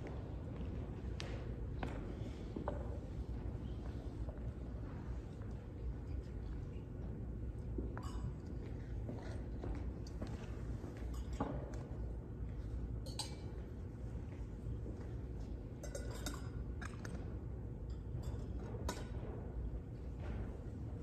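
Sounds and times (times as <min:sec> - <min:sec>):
steady low hum: 0:00.0 - 0:21.0
metal vessels clinking: 0:13.0 - 0:13.6, 0:15.8 - 0:17.1.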